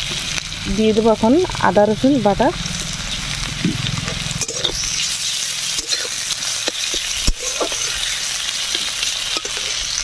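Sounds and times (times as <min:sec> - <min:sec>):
onions sizzling in oil: 0:00.0 - 0:10.0
metal spatula scraping pan: 0:03.9 - 0:10.0.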